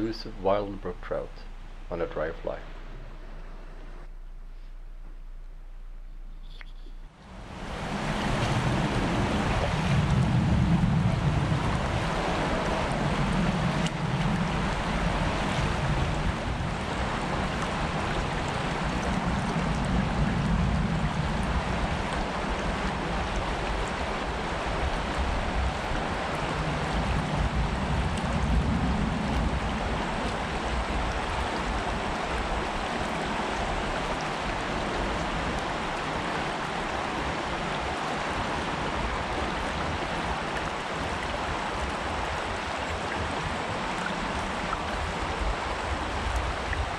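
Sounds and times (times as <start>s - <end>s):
low rumble: 0.0s - 33.1s
creek water rushing: 7.1s - 46.9s.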